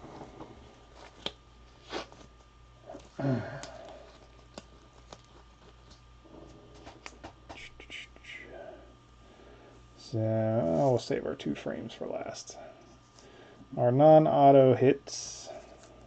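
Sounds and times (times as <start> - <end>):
low vocal hum: 2.8 - 4.4, 6.2 - 11.0.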